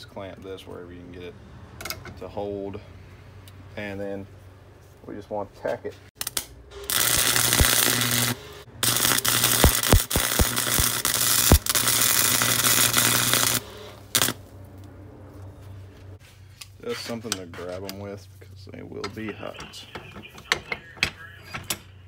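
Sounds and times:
welding arc crackling hiss: 6.2 - 14.5
steady hum: 6.5 - 16.2.

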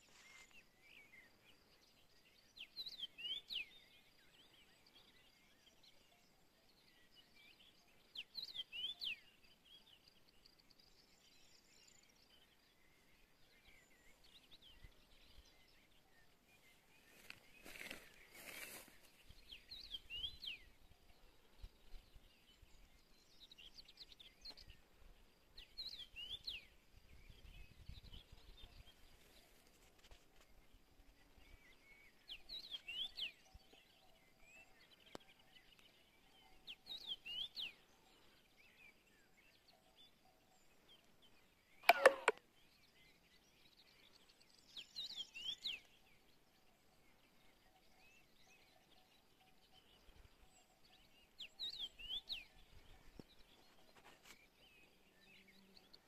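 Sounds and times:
songbird singing: 0.0 - 56.0
sharp click: 41.8 - 42.4.

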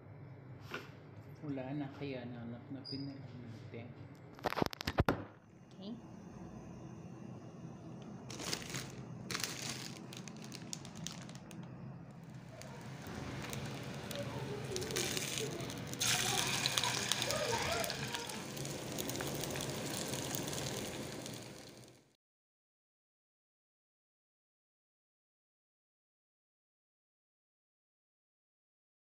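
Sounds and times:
patties sizzling in hot oil: 12.3 - 22.1.

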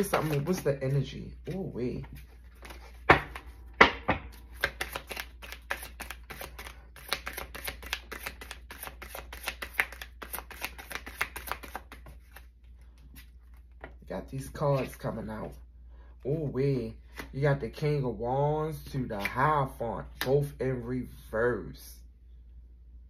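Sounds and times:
playing cards being shuffled: 0.0 - 15.5.

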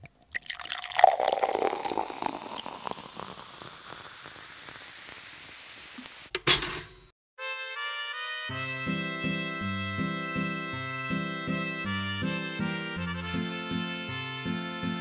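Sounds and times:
crackling sizzle-like hiss: 1.2 - 6.4.

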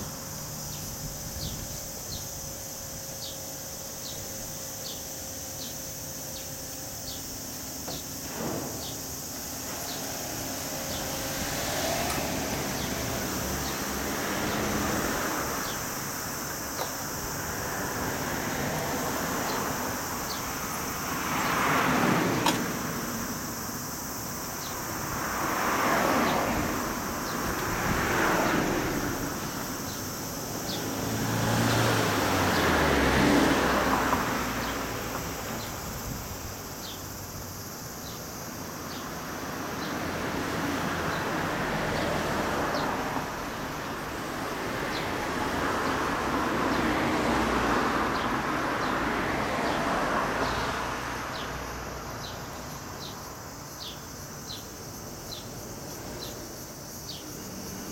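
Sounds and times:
vehicles passing by: 0.0 - 57.9.

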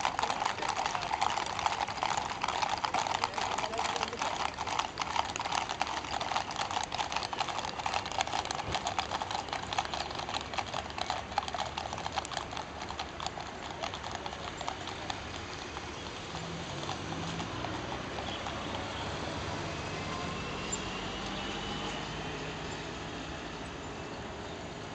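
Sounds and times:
hooves clip-clopping on pavement: 0.0 - 24.9
car engine passing: 14.1 - 24.3.

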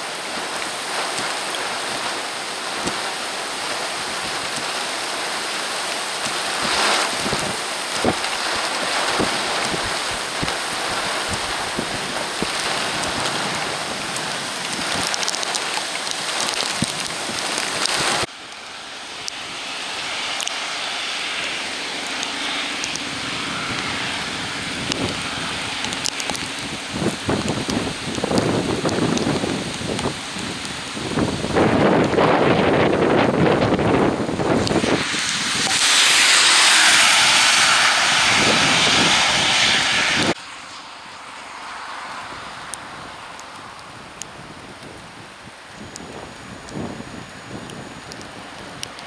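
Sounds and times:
heavy rain hiss: 0.0 - 49.0
raindrops ticking: 0.1 - 35.9, 42.7 - 49.0.

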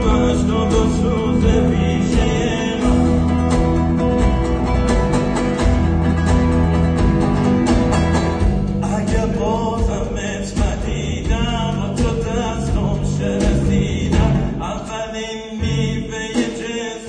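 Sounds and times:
person singing with vibrato: 0.0 - 4.3, 8.6 - 17.0
electric guitars: 0.0 - 10.0
bass guitar: 0.0 - 14.8, 15.6 - 16.3
drums: 0.0 - 17.0.

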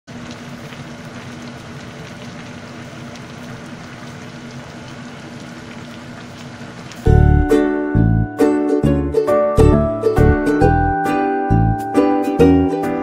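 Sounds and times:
stew bubbling in a pot: 0.1 - 7.1.

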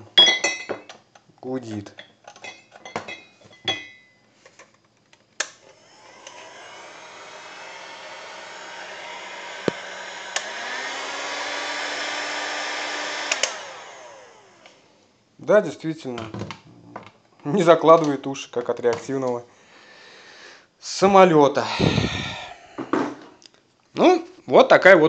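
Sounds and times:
heat gun fan blowing: 5.6 - 14.9, 21.6 - 22.9
heat gun switch click: 9.6 - 10.5, 13.3 - 13.6.

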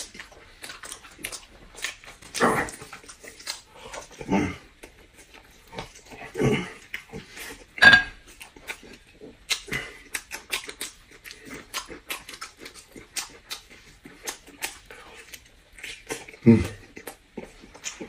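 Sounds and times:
man chewing with lip-smacking: 0.0 - 18.0.

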